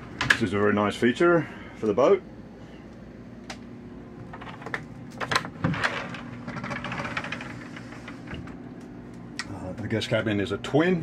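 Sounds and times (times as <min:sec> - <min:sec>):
steady low hum: 0:00.0 - 0:11.0
wooden door sliding on track: 0:05.6 - 0:08.6.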